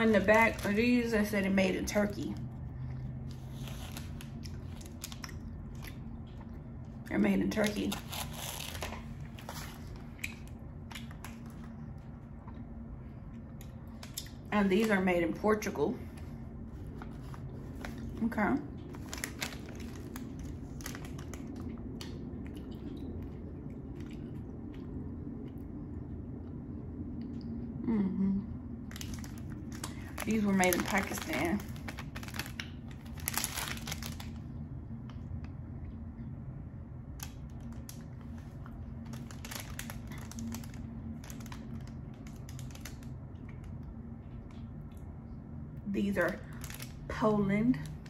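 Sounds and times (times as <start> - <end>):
plastic wrappers crinkling: 0.0 - 1.8, 3.1 - 6.0, 7.4 - 11.8, 16.7 - 22.2, 28.9 - 34.5, 37.2 - 43.8, 46.1 - 48.0
low background hum: 0.0 - 48.0
person chewing candy: 37.2 - 45.0.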